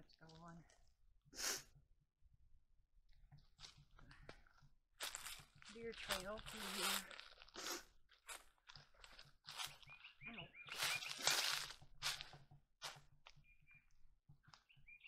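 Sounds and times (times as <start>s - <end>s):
twigs and brush rustling: 3.3s - 13.6s
footsteps crunching dry leaves: 5.0s - 13.0s.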